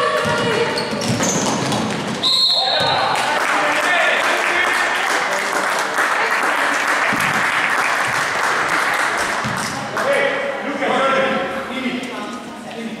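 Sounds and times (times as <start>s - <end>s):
spectators clapping: 2.8s - 10.2s.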